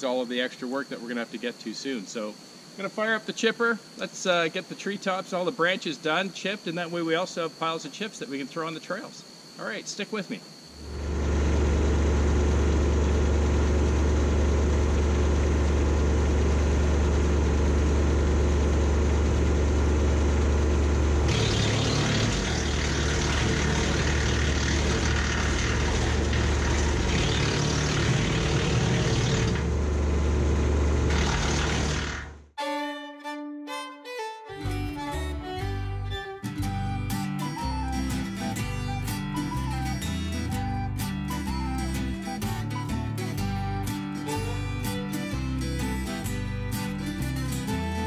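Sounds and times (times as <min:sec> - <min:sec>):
wood chipper grinding branches: 0:10.8 - 0:32.5
tractor engine and rotor drone: 0:10.8 - 0:32.6, 0:35.0 - 0:48.0
fiddle music: 0:32.6 - 0:48.0.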